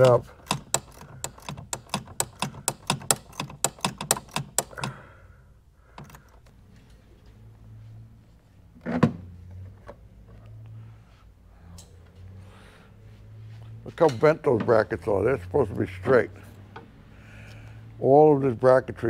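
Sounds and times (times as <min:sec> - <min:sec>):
hand ratchet clicking: 0:00.0 - 0:05.1, 0:05.9 - 0:06.5.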